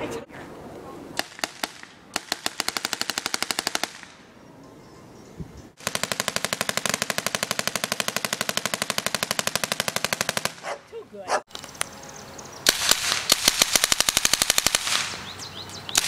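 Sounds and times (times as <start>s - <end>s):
mock machine gun firing: 1.2s - 4.1s, 5.8s - 10.6s, 12.7s - 15.2s.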